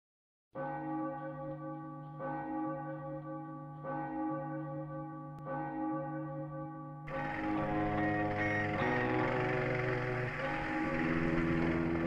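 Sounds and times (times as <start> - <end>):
deep bell tolling: 0.6 - 12.0.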